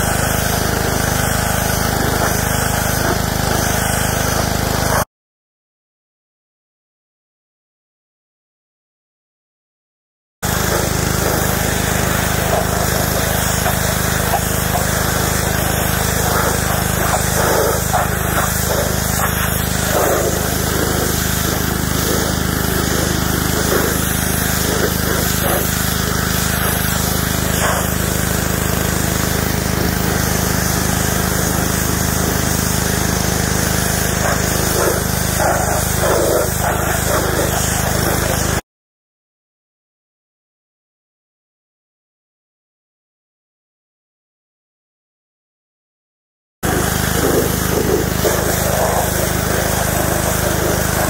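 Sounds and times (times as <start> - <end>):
pressure washer motor hum: 0.0 - 5.0, 10.4 - 38.6, 46.6 - 51.0
water jet hissing on carpet: 10.5 - 38.6, 46.6 - 51.0.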